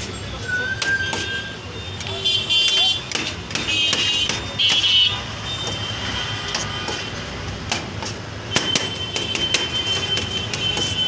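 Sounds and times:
knife chopping on metal tray: 0:00.8 - 0:01.4, 0:02.4 - 0:05.0, 0:06.5 - 0:11.0.

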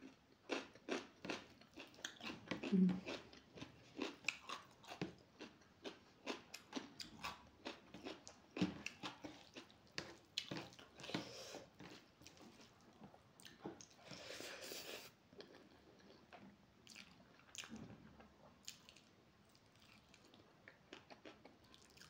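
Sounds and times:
chewing and wet mouth clicks: 0:00.5 - 0:08.3, 0:18.6 - 0:22.0.

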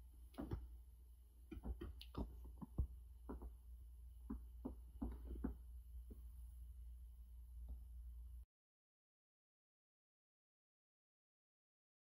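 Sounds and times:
low hum: 0:00.0 - 0:08.5
faint clicks and knocks: 0:01.4 - 0:06.4.

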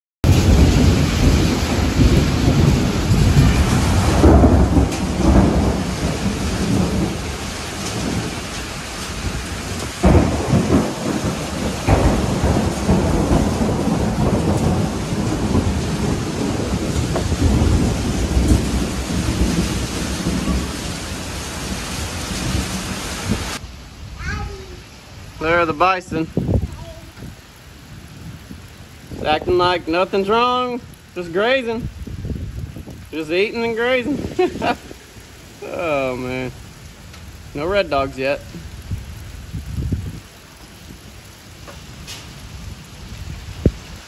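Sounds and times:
sharp thunder cracks: 0:00.2 - 0:23.4, 0:34.0 - 0:37.5
thunder rumbling: 0:00.2 - 0:24.2, 0:25.0 - 0:44.0
heavy rain pouring: 0:00.2 - 0:44.0.

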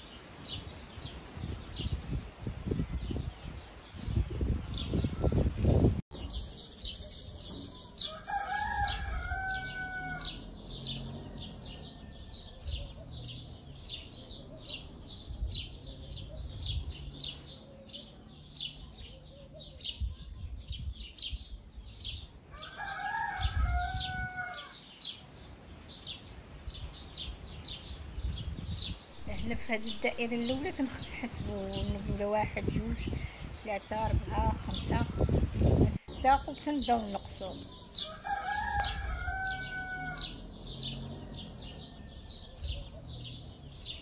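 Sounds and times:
rooster crowing: 0:08.0 - 0:12.7, 0:22.5 - 0:24.8, 0:37.9 - 0:42.6.

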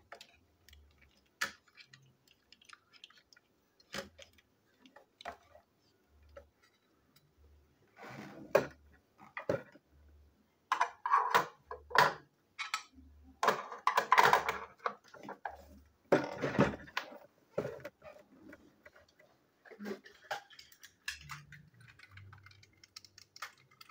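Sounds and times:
plastic toy clicks and rattles: 0:20.1 - 0:23.9.

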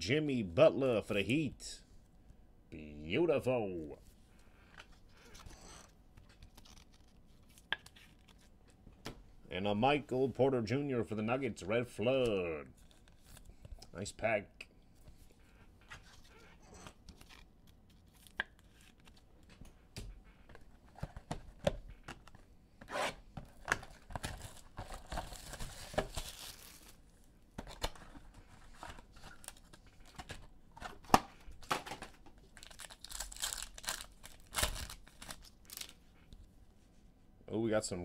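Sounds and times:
foil pack crinkling: 0:23.8 - 0:30.3, 0:32.4 - 0:36.0.

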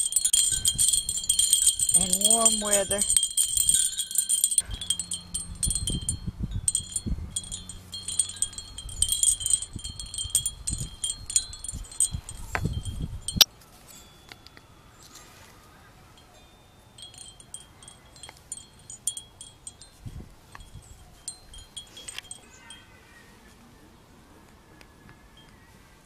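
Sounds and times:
low bumps: 0:00.0 - 0:13.4
metal wind chimes ringing: 0:00.0 - 0:23.2.

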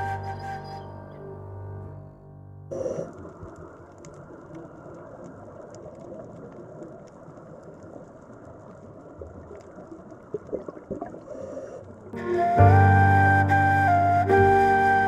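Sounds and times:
muffled underwater rush: 0:02.7 - 0:13.1
faint scattered clicks: 0:02.9 - 0:10.6.

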